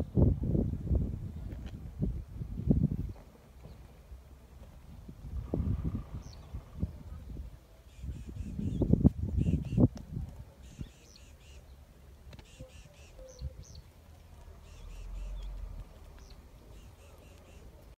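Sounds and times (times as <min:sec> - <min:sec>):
low wind rumble: 0:00.0 - 0:12.7, 0:13.4 - 0:17.1
birds chirping: 0:05.3 - 0:18.0.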